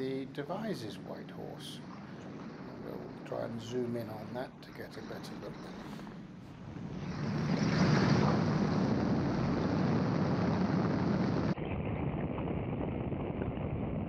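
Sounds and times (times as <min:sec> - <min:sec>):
aircraft engine drone: 0:00.0 - 0:11.6
rushing air: 0:04.7 - 0:11.6.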